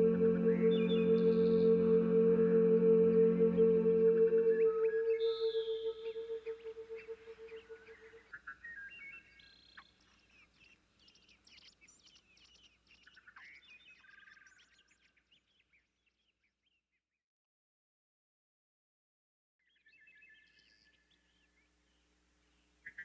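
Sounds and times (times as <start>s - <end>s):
ambient music note: 0.0s - 8.2s
faint bird chirps: 3.0s - 16.9s.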